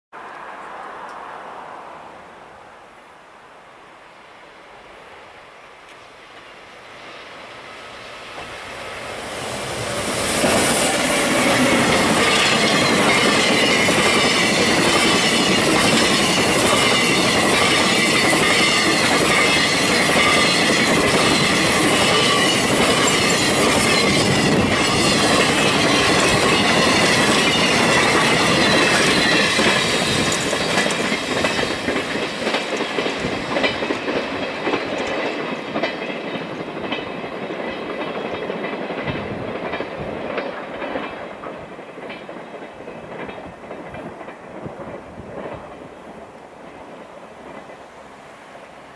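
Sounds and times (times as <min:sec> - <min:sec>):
freight train passing: 0:00.2 - 0:48.9
wheels clicking over rail joints: 0:08.2 - 0:46.1.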